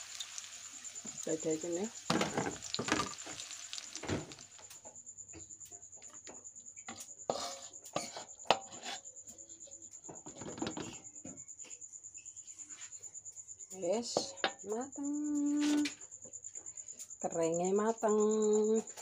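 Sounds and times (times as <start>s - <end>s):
light sizzle: 0.0s - 4.9s
metal spatula scraping a wok: 7.3s - 9.0s.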